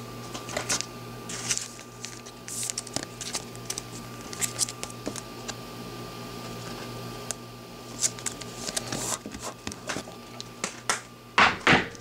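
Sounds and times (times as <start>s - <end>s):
faint steady hum: 0.0s - 12.0s
cards rustling and clicking: 0.3s - 5.6s, 7.9s - 10.1s.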